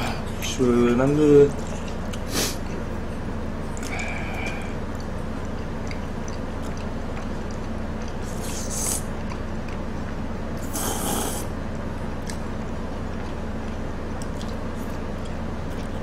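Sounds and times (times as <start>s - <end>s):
chewing: 0.0s - 16.0s
low hum: 0.0s - 16.0s
hissing slurps: 8.2s - 9.0s, 10.6s - 11.5s.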